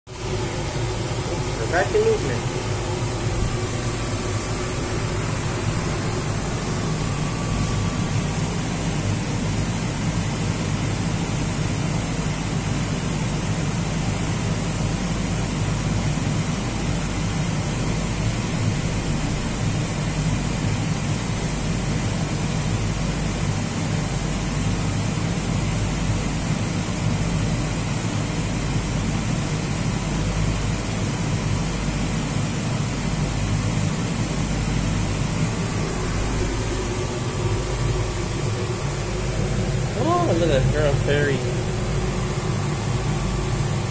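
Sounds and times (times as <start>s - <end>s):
steady hum and rushing air: 0.1s - 13.0s, 33.1s - 43.9s.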